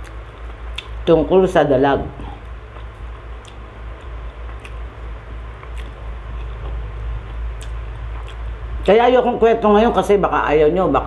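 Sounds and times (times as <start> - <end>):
person chewing food: 0.0 - 1.0, 2.4 - 8.9
low steady hum: 0.0 - 11.0.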